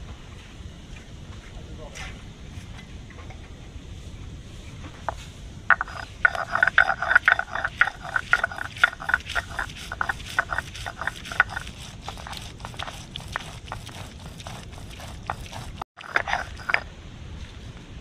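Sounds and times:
stone crushing and grinding spices: 0:05.1 - 0:16.9.

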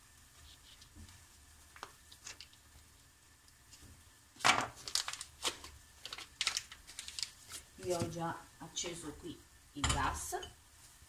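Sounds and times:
paper wrapper crinkling: 0:01.7 - 0:02.7, 0:04.4 - 0:08.2.

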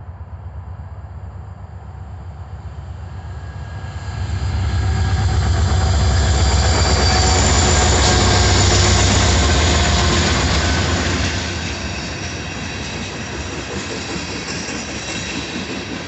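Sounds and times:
diesel locomotive engine rumble: 0:00.0 - 0:16.0
train wheels rushing on rail: 0:01.2 - 0:16.0.

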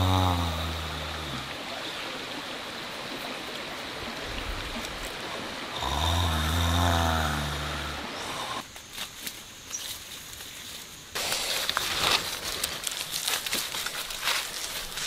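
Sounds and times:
person snoring: 0:00.0 - 0:01.5, 0:05.7 - 0:08.6
steady hiss: 0:00.0 - 0:15.0.

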